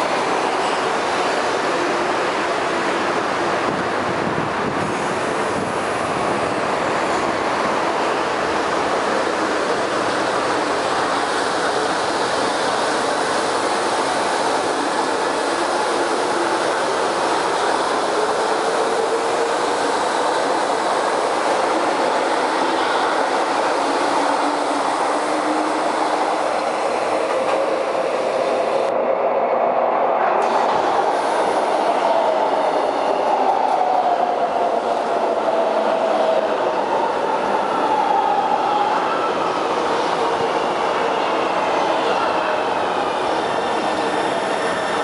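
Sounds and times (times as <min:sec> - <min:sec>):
train wheels rumbling on rail: 0:00.0 - 0:29.0.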